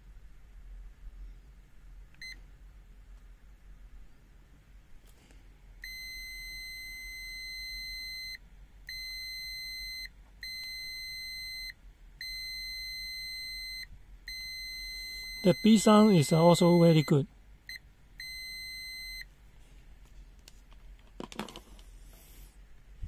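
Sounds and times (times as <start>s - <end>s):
multimeter continuity beep: 2.2s - 2.4s, 5.8s - 19.3s.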